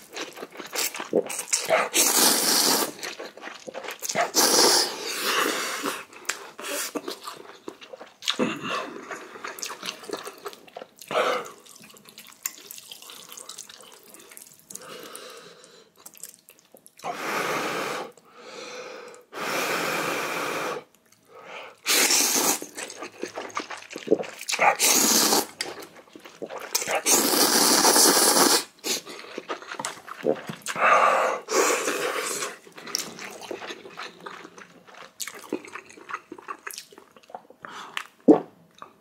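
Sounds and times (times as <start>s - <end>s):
chewing and smacking: 0.0s - 2.0s, 2.9s - 4.4s, 5.9s - 15.1s, 16.0s - 17.0s, 22.6s - 24.8s, 25.4s - 27.1s, 28.8s - 30.9s, 31.8s - 39.0s
noodles being slurped: 0.0s - 8.2s, 21.8s - 30.8s.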